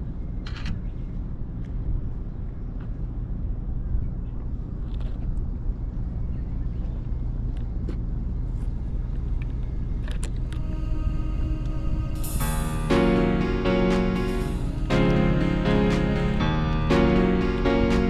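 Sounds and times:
wind on microphone: 9.0 - 12.6.

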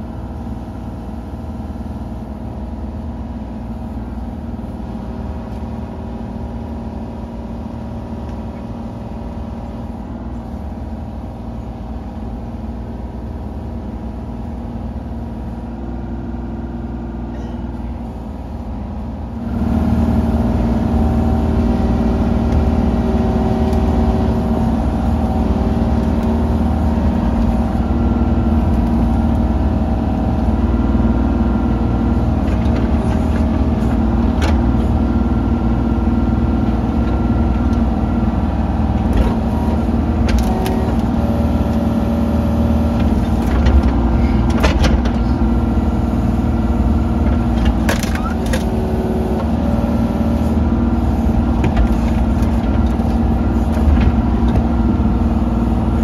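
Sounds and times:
diesel engine running: 0.0 - 56.0
hydraulics: 17.2 - 56.0.

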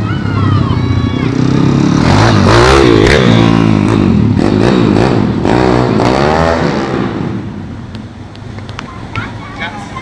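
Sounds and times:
pit bike engine revving: 0.4 - 7.6.

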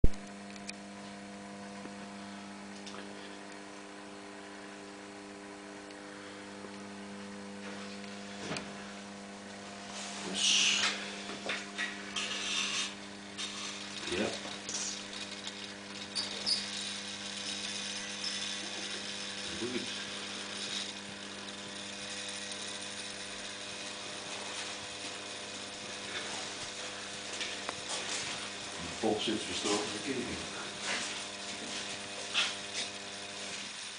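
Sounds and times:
electrical mains hum: 0.0 - 33.9
carbon arc lamp hissing: 1.2 - 33.9
arc crackling: 9.4 - 33.9.

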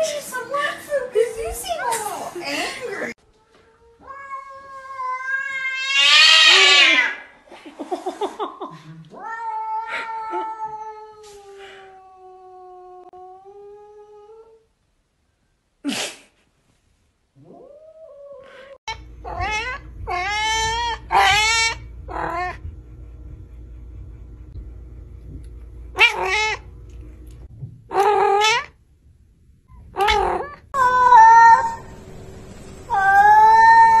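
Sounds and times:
cat meowing: 3.7 - 7.2, 19.2 - 22.6, 26.0 - 26.6, 27.9 - 28.7, 30.0 - 31.8, 32.9 - 34.0
cat yowling: 3.9 - 7.2, 17.5 - 22.6, 26.0 - 26.6, 27.9 - 28.7, 30.0 - 31.9, 32.9 - 34.0.

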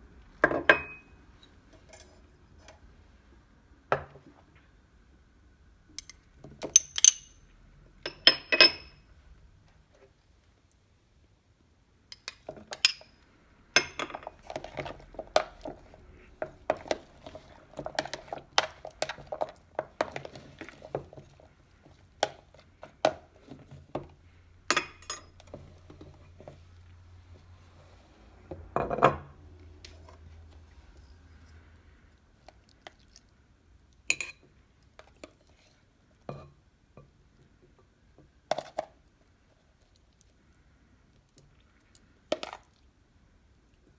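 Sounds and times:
utensils clinking on dishes: 6.0 - 7.4.

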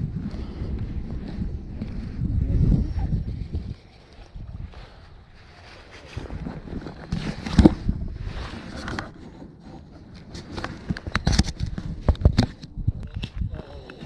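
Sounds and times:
clothing rubbing against camera: 0.3 - 12.7.

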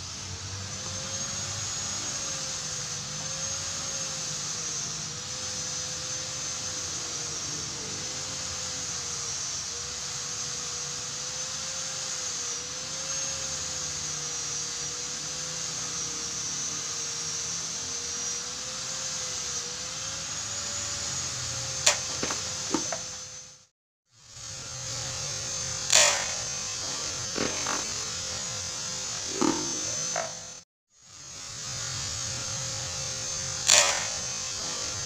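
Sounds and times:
steady wavering whine: 0.0 - 35.0
sharp click: 21.8 - 23.1, 25.9 - 28.2, 33.6 - 34.6.

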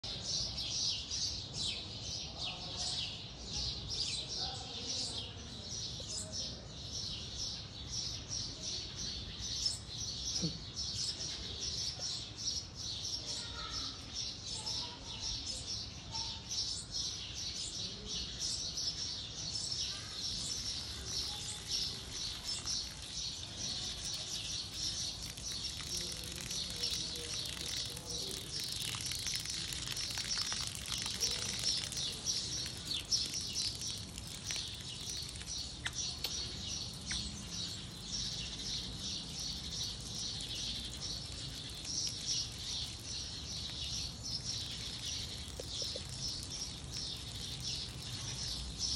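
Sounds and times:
birds chirping: 4.0 - 48.9
water spraying: 20.2 - 37.2, 39.4 - 48.8.

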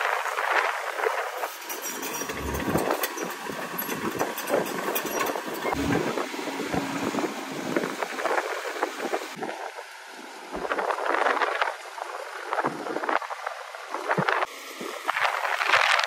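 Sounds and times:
heavy diesel machinery running: 1.5 - 9.4.

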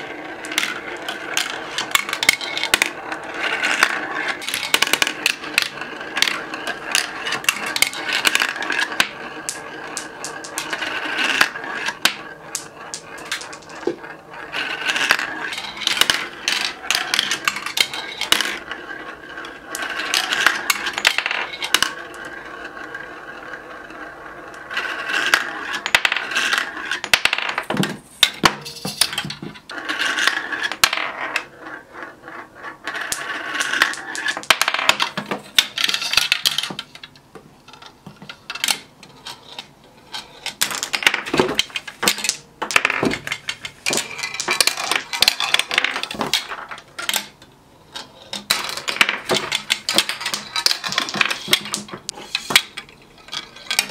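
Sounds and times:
marbles rolling on plastic tracks: 0.0 - 53.9
clicks and clattering knocks: 40.4 - 47.4.

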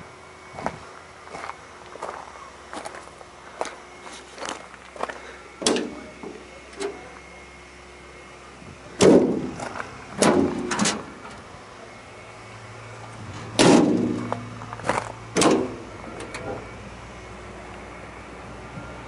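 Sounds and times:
metal doors clanking: 10.2 - 11.4, 13.4 - 14.4, 15.3 - 16.6.

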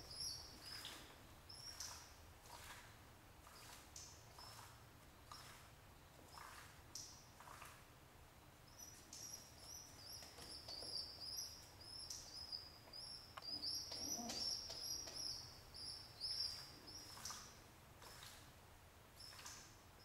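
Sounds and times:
pigeon chick peeping: 13.4 - 17.4.

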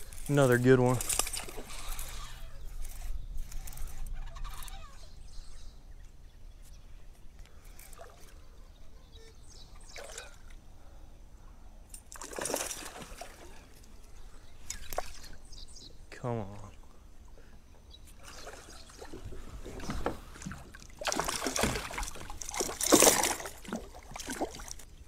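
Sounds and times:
water splashing beside kayak: 12.1 - 15.5, 18.1 - 25.0.

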